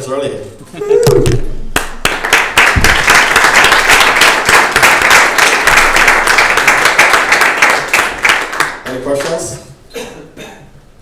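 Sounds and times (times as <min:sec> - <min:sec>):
audience applauding: 0:01.8 - 0:09.5.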